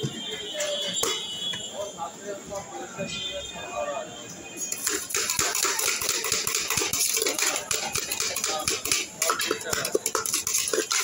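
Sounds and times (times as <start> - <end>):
puffed rice rattling in steel tin: 4.8 - 11.0.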